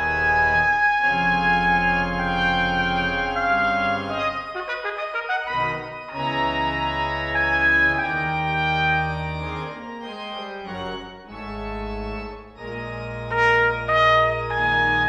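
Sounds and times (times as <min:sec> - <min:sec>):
church organ chords: 0:00.0 - 0:15.0
trumpet sustained notes: 0:03.3 - 0:07.7, 0:13.3 - 0:15.0.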